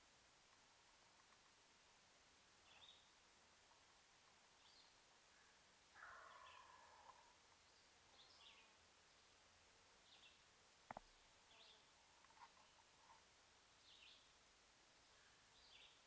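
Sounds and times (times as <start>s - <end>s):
distant turkey gobble: 5.4s - 7.4s.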